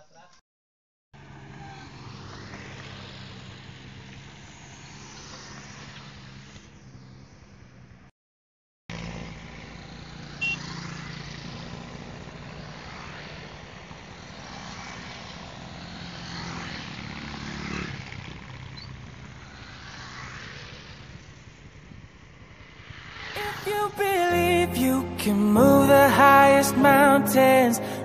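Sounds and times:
motorcycles passing on road: 1.2s - 8.1s, 8.9s - 28.0s.

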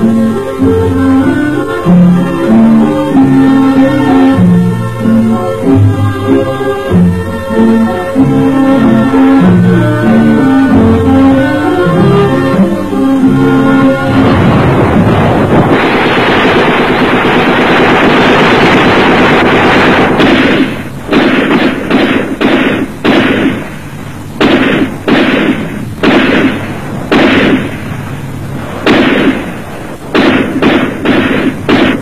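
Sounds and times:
gunfire with echo: 14.1s - 32.0s.

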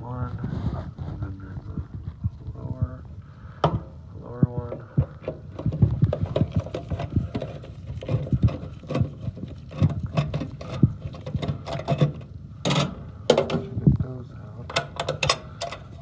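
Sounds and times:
screwdriver on metal clicking: 14.7s - 16.0s.

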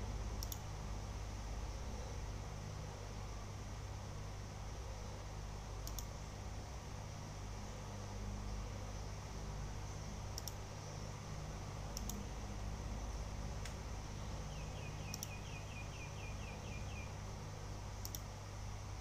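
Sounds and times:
high ticks: 0.4s - 0.7s, 5.8s - 6.1s, 10.3s - 10.6s, 11.9s - 12.3s, 14.9s - 15.9s, 18.0s - 18.3s
sharp clicks: 0.4s - 0.7s, 5.8s - 6.1s, 10.3s - 10.6s, 11.9s - 12.3s, 13.6s - 13.8s, 15.0s - 15.5s, 18.0s - 18.3s.

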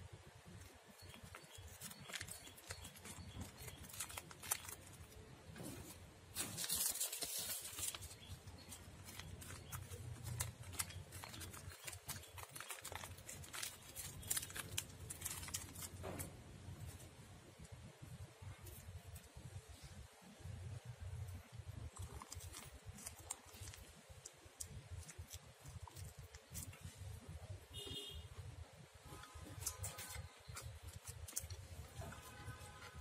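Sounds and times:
rice paper and herbs rustling: 1.1s - 16.3s.

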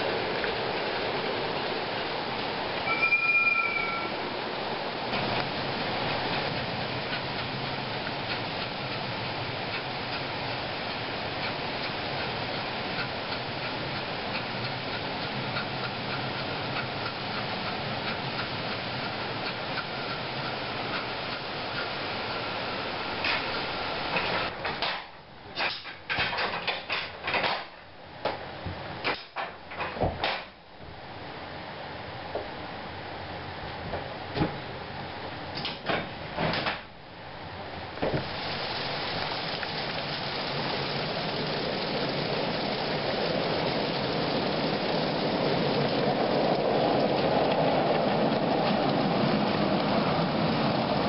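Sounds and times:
steam locomotive exhaust ticks: 5.2s - 22.5s
steam hiss: 38.1s - 46.6s.

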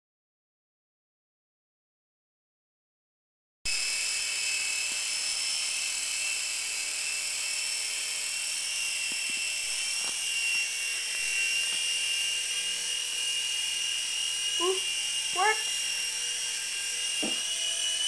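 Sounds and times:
toy helicopter whine: 3.7s - 18.0s.

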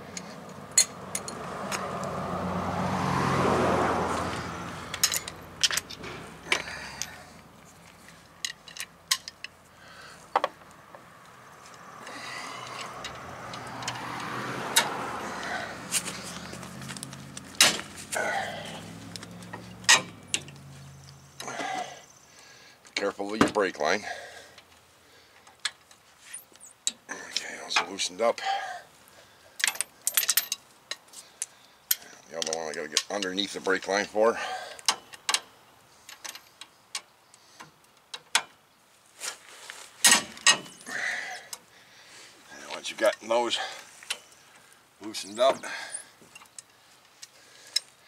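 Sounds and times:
cars passing: 0.0s - 22.9s, 27.0s - 36.4s, 39.8s - 48.0s
metal tools clicking and clinking: 4.9s - 7.2s, 8.4s - 9.6s, 29.6s - 31.1s.

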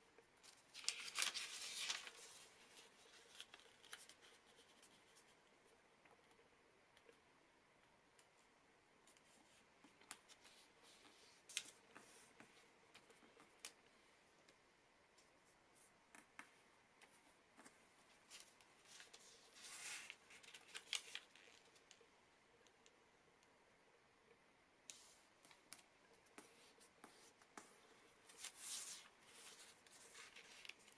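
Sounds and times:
paper crinkling and folding: 0.2s - 5.4s, 9.1s - 14.0s, 17.6s - 22.0s, 25.4s - 30.9s.

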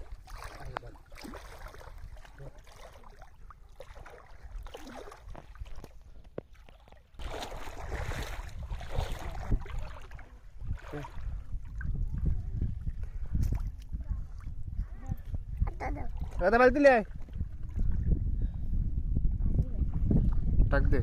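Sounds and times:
river water splashing around legs: 0.0s - 12.1s
lapping water: 0.0s - 18.7s
wind rumbling on microphone: 7.2s - 21.0s.

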